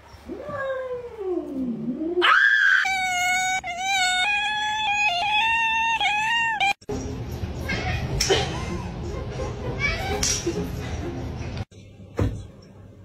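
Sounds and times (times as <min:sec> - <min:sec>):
cat yowling high-pitched: 0:02.2 - 0:06.9.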